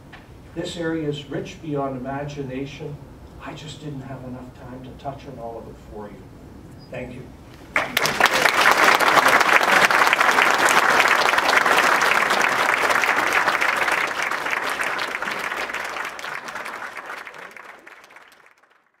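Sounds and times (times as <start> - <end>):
audience applauding: 7.8 - 19.0.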